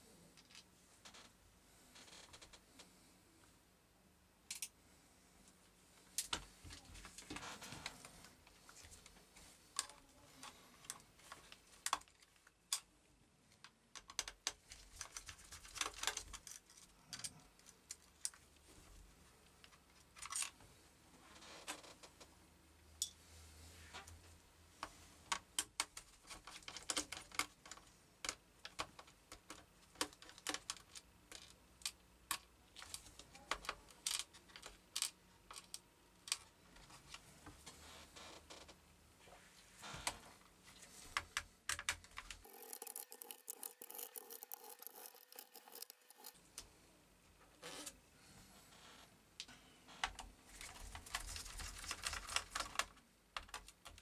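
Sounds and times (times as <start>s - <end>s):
plastic parts clicking and tapping: 4.5s - 4.7s, 13.6s - 18.4s, 25.3s - 36.5s, 41.1s - 46.4s, 50.0s - 54.0s.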